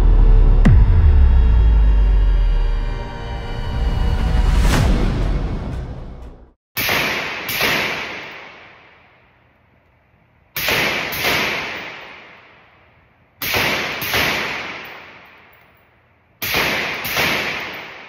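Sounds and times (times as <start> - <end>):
suppressed rifle shots: 6.8 - 9.0, 10.6 - 12.6, 13.4 - 15.5, 16.4 - 18.0
long echo off walls: 6.8 - 18.0.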